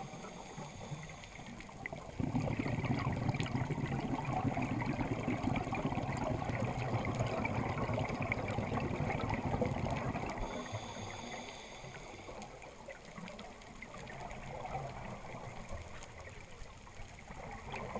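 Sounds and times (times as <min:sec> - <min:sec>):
faint high whine: 0:00.0 - 0:02.0, 0:10.2 - 0:12.9
underwater exhaust bubbling: 0:00.0 - 0:17.9.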